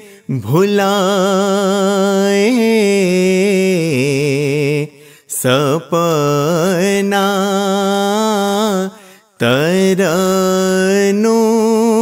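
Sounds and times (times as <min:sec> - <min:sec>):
singer breathing: 0:00.0 - 0:00.3, 0:04.9 - 0:05.4, 0:08.9 - 0:09.4
man singing a hymn: 0:00.0 - 0:12.0.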